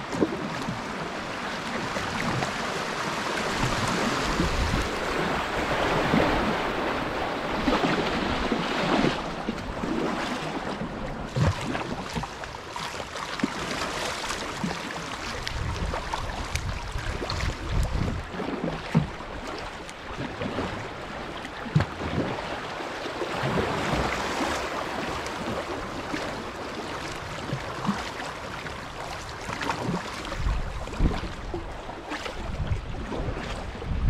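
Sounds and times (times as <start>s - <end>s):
paddle splashes and knocks: 0.0s - 34.0s
river water rushing and rippling: 0.0s - 34.0s.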